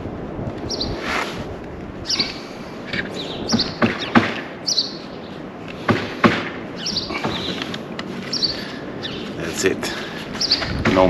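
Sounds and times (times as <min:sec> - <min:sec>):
bird chirping: 0:00.7 - 0:01.0, 0:02.0 - 0:05.9, 0:06.7 - 0:11.0.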